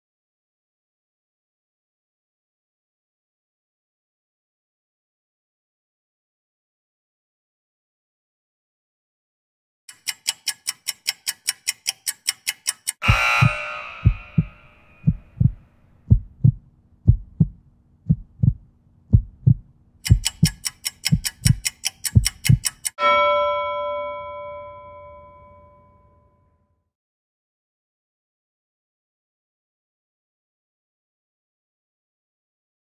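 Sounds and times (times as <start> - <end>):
fast timer ticking: 9.9 - 23.0
heartbeat-like low thumps: 13.0 - 22.7
ringing bell tone: 23.0 - 26.7.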